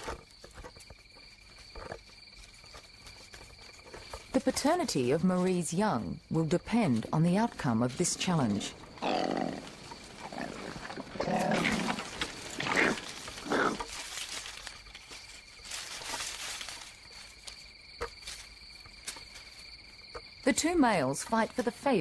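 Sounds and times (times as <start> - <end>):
faint scuffling: 0.0 - 20.2
insects calling: 0.0 - 22.0
koalas snarling and squealing: 8.4 - 14.2.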